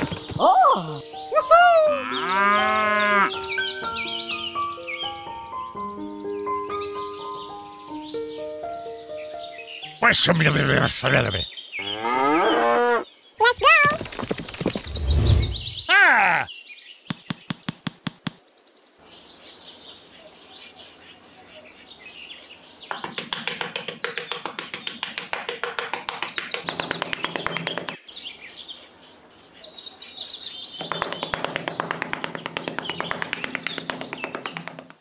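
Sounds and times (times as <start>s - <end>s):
birds chirping: 0.0s - 35.0s
trowel scraping sand: 20.0s - 22.8s.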